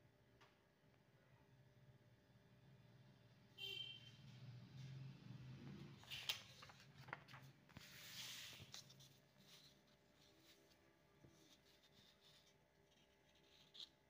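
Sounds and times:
paper rustling: 0:06.0 - 0:14.0.

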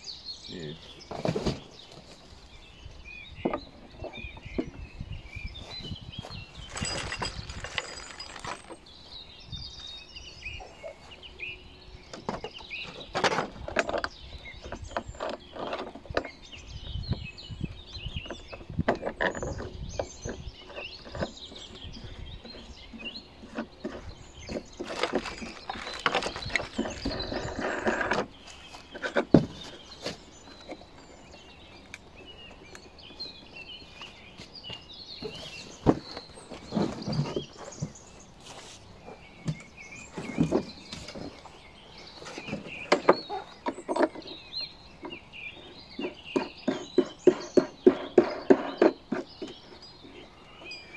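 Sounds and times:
birds chirping: 0:00.0 - 0:50.9
plastic bag rustling: 0:06.6 - 0:08.8.

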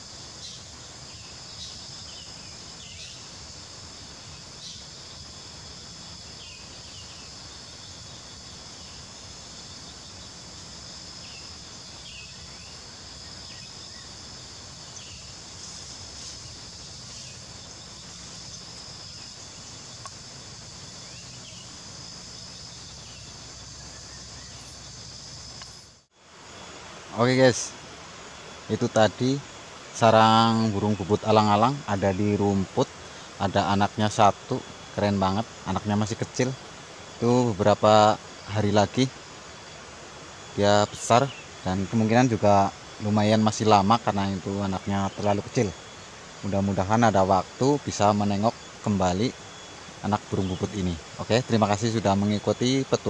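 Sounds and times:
insects droning: 0:00.0 - 0:53.0.

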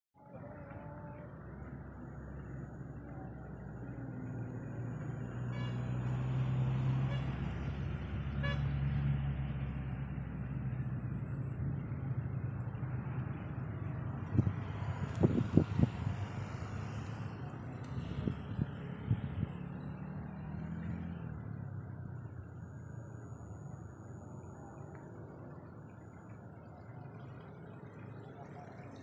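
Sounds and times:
engine running with low hum: 0:00.2 - 0:29.0
outdoor background noise: 0:00.2 - 0:29.0.

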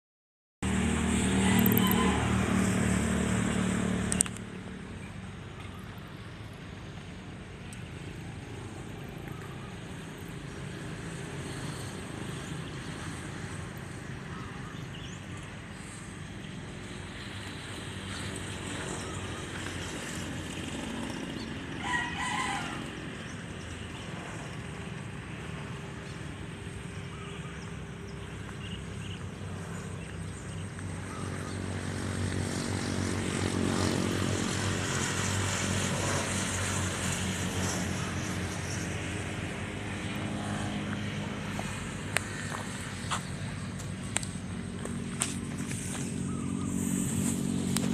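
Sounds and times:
distant engine humming: 0:00.6 - 0:47.9
rooster crowing: 0:01.3 - 0:02.6, 0:21.8 - 0:23.0.

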